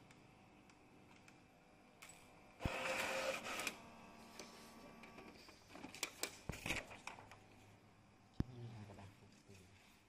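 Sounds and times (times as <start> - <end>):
inkjet printer printing: 2.6 - 5.5.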